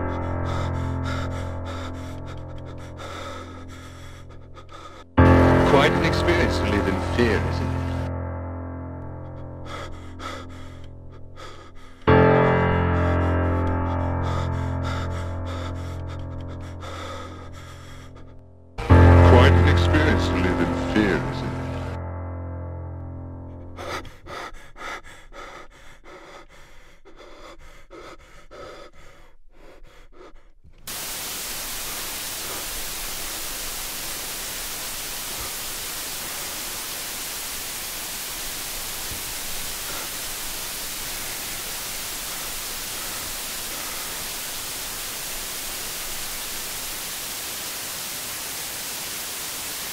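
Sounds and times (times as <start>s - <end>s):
television static hiss: 5.4s - 8.1s, 18.8s - 21.9s, 30.9s - 49.9s.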